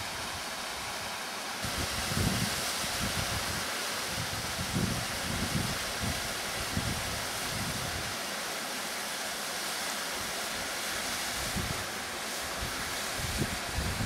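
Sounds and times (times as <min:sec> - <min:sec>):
waterfall rushing: 0:00.0 - 0:14.0
wind buffeting microphone: 0:01.6 - 0:08.1, 0:12.6 - 0:14.0.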